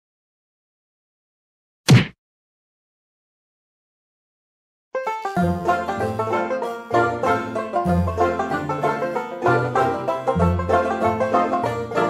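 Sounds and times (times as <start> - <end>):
short whack: 1.9 - 2.2.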